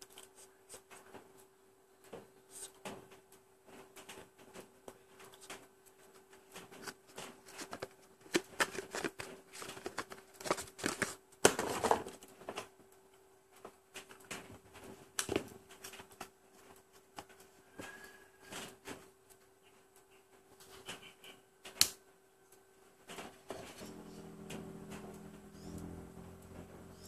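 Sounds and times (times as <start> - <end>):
faint steady hum: 0.0 - 27.0
cardboard box rustling: 6.7 - 12.2.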